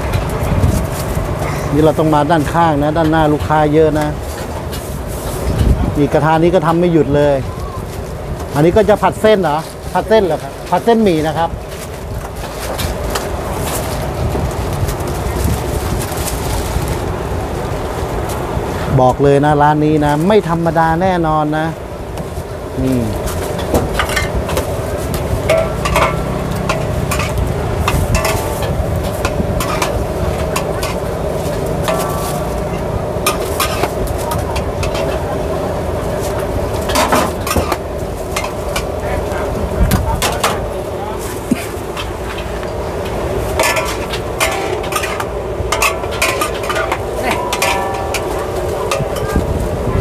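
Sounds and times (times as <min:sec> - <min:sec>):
utensils clanking against a wok: 0:00.0 - 0:17.1, 0:20.0 - 0:49.9
noodles sizzling: 0:00.0 - 0:50.0
spatula clanking on a wok: 0:25.4 - 0:35.5, 0:42.0 - 0:49.4.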